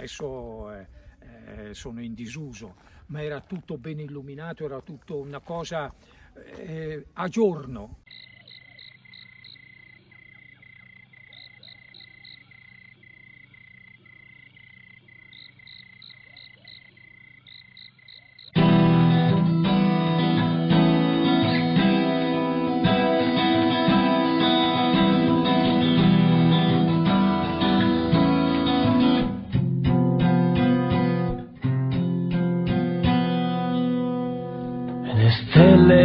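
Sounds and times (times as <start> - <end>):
night animal chorus: 8.1 - 18.6
pulsing chirp: 8.1 - 18.6
strummed acoustic guitar music: 18.6 - 36.0.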